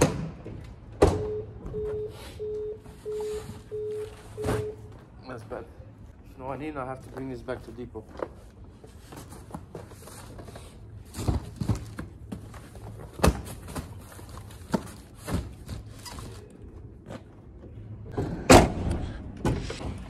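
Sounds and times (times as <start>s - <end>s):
cardboard parcels thudding: 9.0s - 16.5s.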